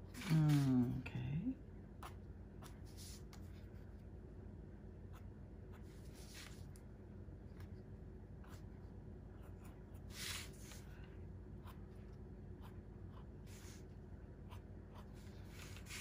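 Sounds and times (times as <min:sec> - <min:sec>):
marker scratching on paper: 0:12.6 - 0:13.9.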